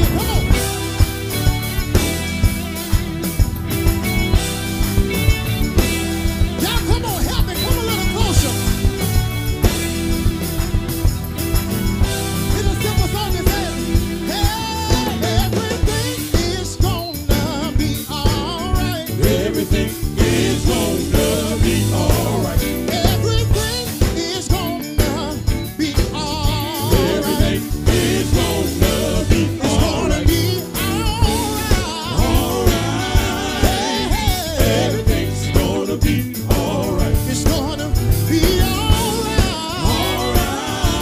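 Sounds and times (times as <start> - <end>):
man singing: 0.0 - 0.9, 6.6 - 8.8, 12.5 - 41.0
drum beat: 0.0 - 41.0
gospel band playing: 0.0 - 41.0.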